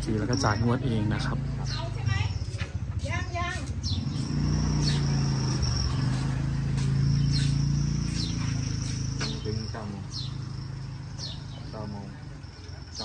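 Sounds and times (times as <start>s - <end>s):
insects droning: 3.8s - 13.0s.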